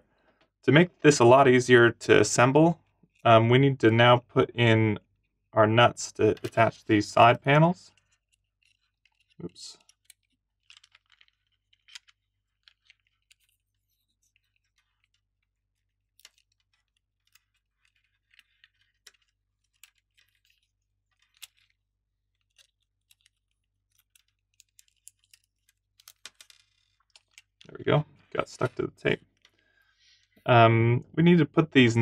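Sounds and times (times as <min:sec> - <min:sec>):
small plastic clicks: 0:07.9 - 0:27.7.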